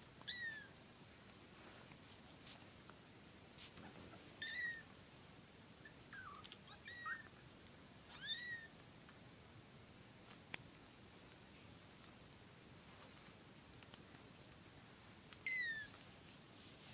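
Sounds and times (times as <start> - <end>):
faint rustles: 0.2 - 5.0, 10.2 - 16.9.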